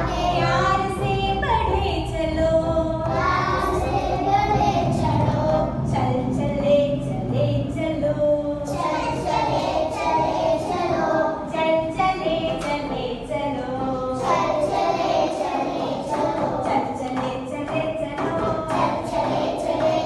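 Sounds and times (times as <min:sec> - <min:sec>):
children singing in unison: 0:00.0 - 0:00.9, 0:03.0 - 0:05.9, 0:08.5 - 0:11.6, 0:13.7 - 0:16.8, 0:18.4 - 0:20.0
woman singing: 0:00.0 - 0:03.8, 0:04.9 - 0:09.4, 0:11.4 - 0:14.7, 0:16.1 - 0:19.3.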